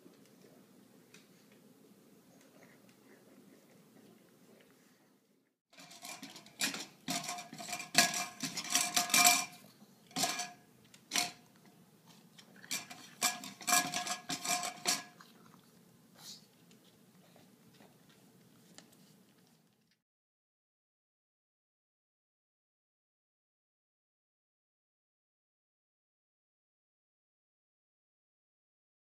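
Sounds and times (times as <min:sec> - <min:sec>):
bowl clattering against wire stand: 0:05.8 - 0:11.5, 0:12.4 - 0:15.2
dog eating from bowl: 0:05.8 - 0:20.0.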